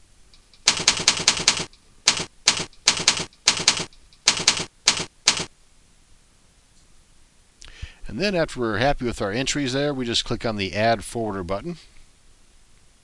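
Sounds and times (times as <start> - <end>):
keyboard keystrokes clacking: 0.4 - 5.5.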